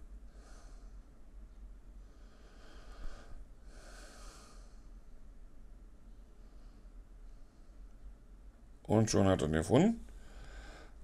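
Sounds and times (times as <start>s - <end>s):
low steady hum: 0.0s - 11.0s
man breathing through nose: 0.3s - 1.2s, 2.0s - 5.0s, 10.1s - 11.0s.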